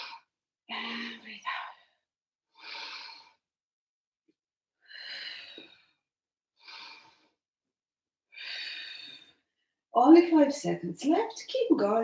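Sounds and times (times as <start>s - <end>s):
woman breathing while exercising: 0.0s - 3.5s, 4.8s - 7.5s, 8.3s - 9.8s.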